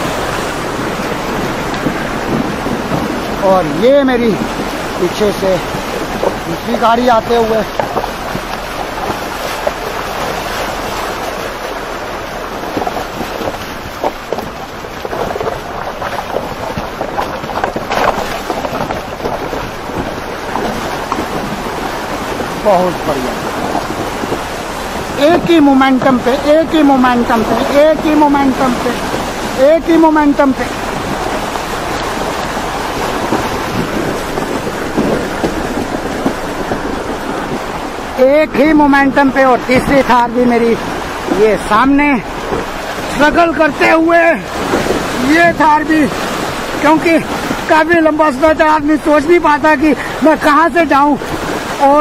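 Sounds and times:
stones knocking: 0:00.0 - 0:11.4, 0:12.5 - 0:48.2
river water churning and splashing: 0:00.0 - 0:52.0
wind buffeting microphone: 0:00.0 - 0:52.0.

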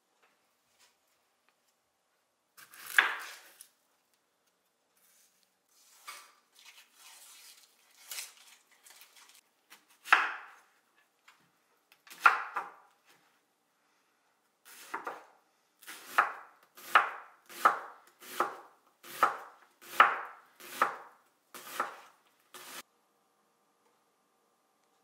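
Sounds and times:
knife cutting onion on wooden board: 0:02.6 - 0:03.7, 0:09.7 - 0:10.7, 0:12.1 - 0:12.9, 0:14.7 - 0:22.8
rustling of dry onion skin: 0:05.0 - 0:09.4.

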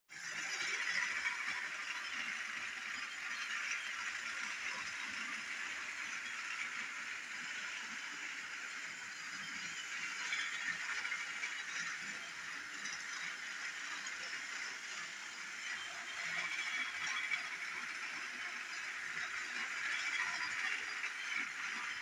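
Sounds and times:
toy train motor whirring: 0:00.1 - 0:22.0
wheels rattling on track: 0:00.2 - 0:22.0.

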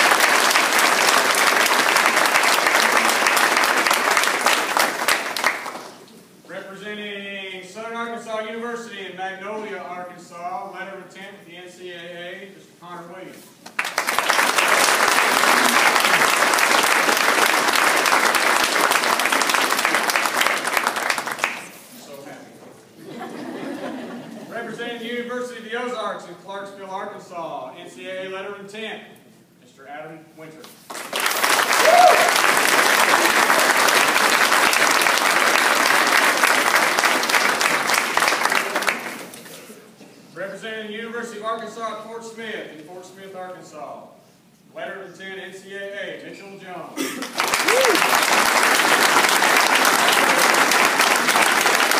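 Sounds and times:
audience applauding: 0:00.0 - 0:06.0, 0:13.7 - 0:21.9, 0:30.9 - 0:39.4, 0:47.2 - 0:51.9.

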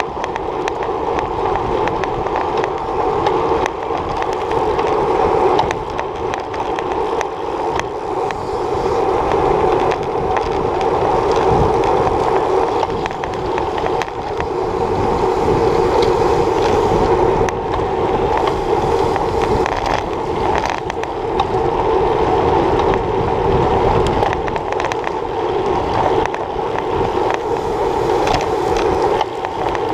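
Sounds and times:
bicycle knocks and rattles: 0:00.0 - 0:29.9
road noise: 0:00.0 - 0:29.9
wind rushing: 0:02.9 - 0:29.9.

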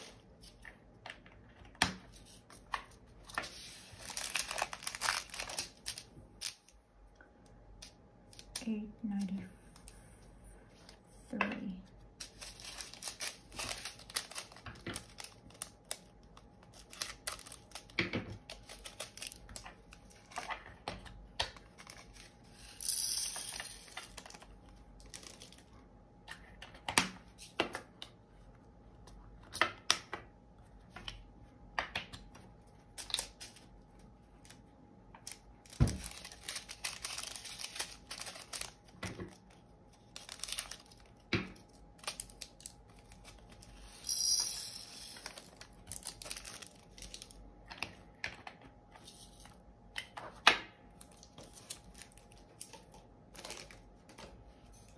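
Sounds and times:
plastic bags crinkling and tearing: 0:03.4 - 0:06.7, 0:12.2 - 0:20.5, 0:23.9 - 0:25.7, 0:32.9 - 0:34.6, 0:35.2 - 0:43.8, 0:45.1 - 0:47.4, 0:50.9 - 0:54.3.

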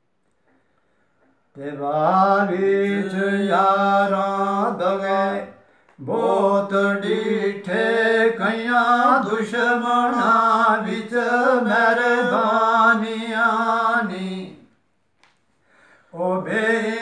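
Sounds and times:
breath: 0:00.4 - 0:01.4, 0:05.6 - 0:06.0, 0:15.6 - 0:16.2
man singing unaccompanied: 0:01.5 - 0:14.7, 0:16.1 - 0:17.0.

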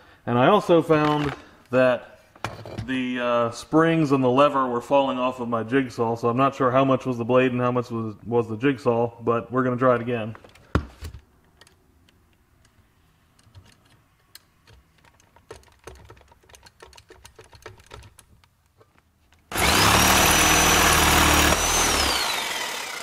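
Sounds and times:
jigsaw running: 0:19.5 - 0:23.0.

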